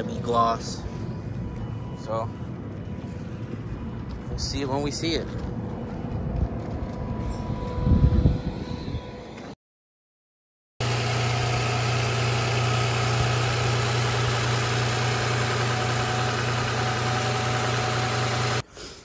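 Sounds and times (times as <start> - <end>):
car engine idling: 10.8 - 18.6.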